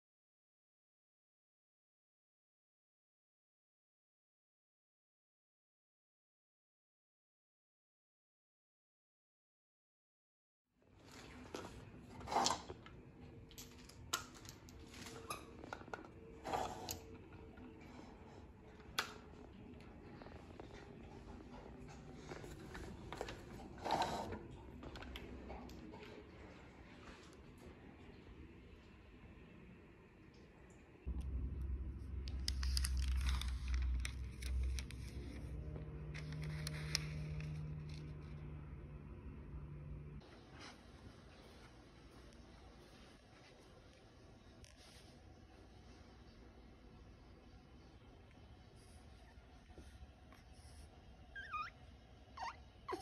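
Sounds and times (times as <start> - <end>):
faint room hum: 10.8 - 53.0
low rumble: 31.1 - 40.2
thin pages rustling: 32.3 - 38.3.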